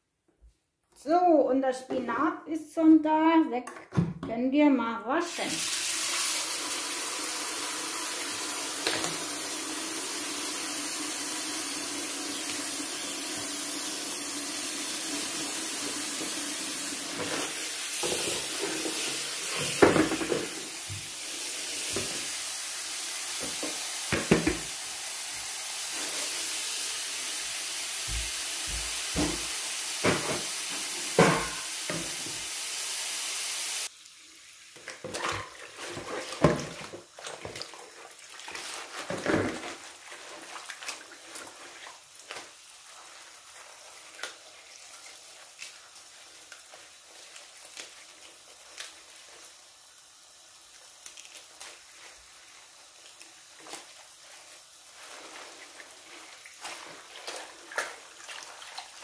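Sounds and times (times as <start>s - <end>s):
tap running into a sink: 8.2s - 9.5s, 15.8s - 21.2s, 21.8s - 22.3s, 23.3s - 24.8s, 28.0s - 32.5s.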